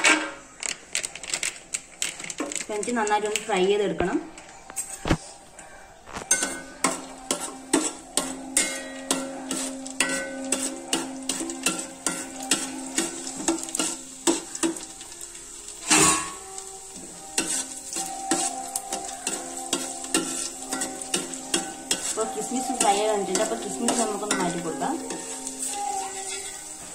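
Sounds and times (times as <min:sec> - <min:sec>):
light sizzle: 0:00.0 - 0:26.9
metal spoon scraping pan: 0:06.1 - 0:14.9, 0:15.6 - 0:26.9.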